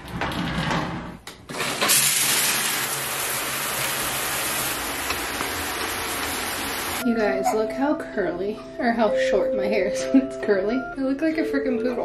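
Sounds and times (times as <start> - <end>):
shower spraying onto tile: 1.6 - 7.0.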